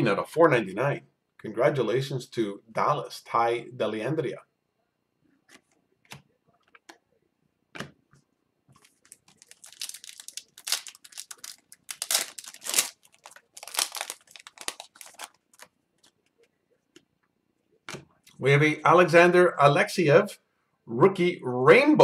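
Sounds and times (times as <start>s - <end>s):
plastic sleeve crinkling: 8.7s - 16.5s.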